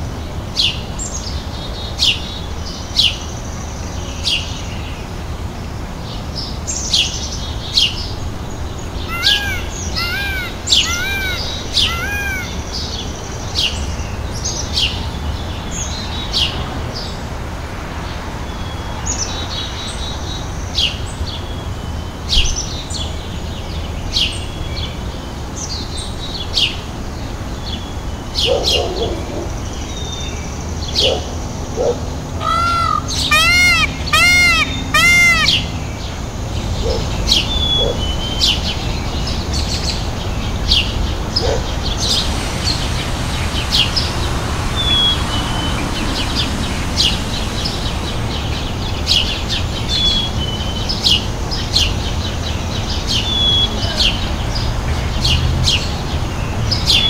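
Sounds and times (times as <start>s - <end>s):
small birds chirping: 6.5s - 14.7s, 32.4s - 57.0s
whistled bird notes: 9.1s - 12.9s, 41.9s - 50.9s.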